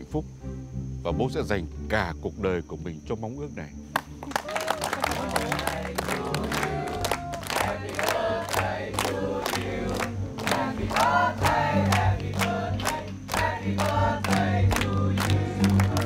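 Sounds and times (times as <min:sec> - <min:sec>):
music with singing voices: 0:05.0 - 0:16.0.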